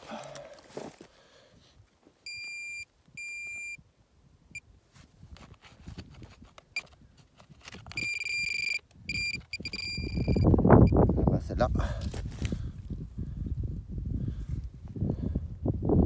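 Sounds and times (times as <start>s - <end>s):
metal detector beeping: 2.2s - 3.8s, 6.7s - 7.0s, 7.7s - 11.0s.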